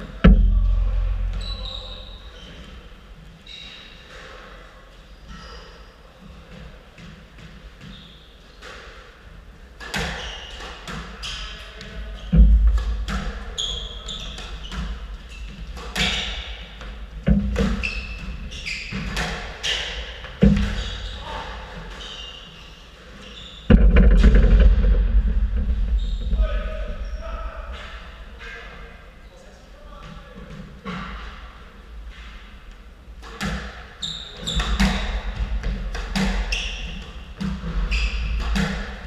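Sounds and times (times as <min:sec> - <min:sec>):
heavy thumps: 0:00.2 - 0:02.3, 0:20.4 - 0:20.9, 0:23.7 - 0:28.0.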